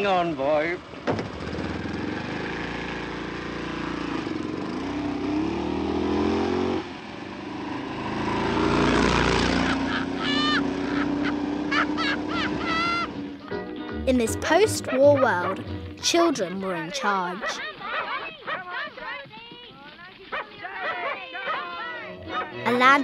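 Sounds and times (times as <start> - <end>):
small car engine accelerating: 1.0 - 13.4
short high-pitched sounds: 14.1 - 17.6.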